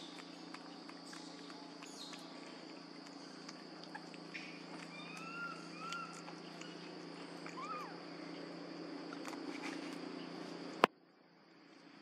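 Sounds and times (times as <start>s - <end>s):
low hum: 0.0s - 12.0s
whistle-like animal calls: 4.9s - 6.3s.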